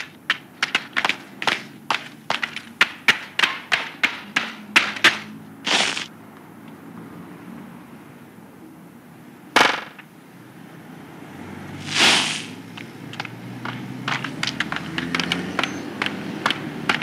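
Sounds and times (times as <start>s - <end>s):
high heels clicking on pavement: 0.0s - 6.1s, 11.8s - 17.0s
street background: 0.0s - 17.0s
short hissing whoosh: 11.8s - 12.6s.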